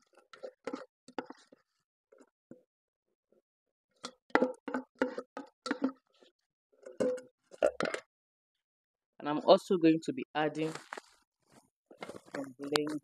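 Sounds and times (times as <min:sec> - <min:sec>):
plastic spatula tapping in pot: 0:04.0 - 0:06.0.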